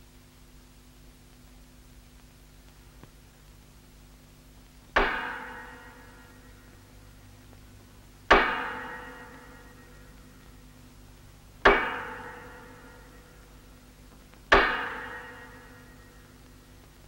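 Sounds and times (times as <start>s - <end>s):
heavy steel struck and ringing: 5.0s - 7.3s, 8.3s - 10.7s, 11.6s - 13.8s, 14.5s - 16.4s.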